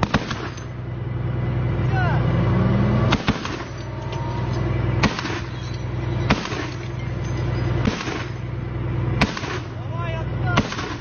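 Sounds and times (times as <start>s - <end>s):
heavy machine gun single shots: 0.0s - 0.7s, 3.1s - 3.9s, 5.0s - 8.5s, 9.2s - 9.8s, 10.5s - 11.0s
armored vehicle engine running: 0.0s - 11.0s.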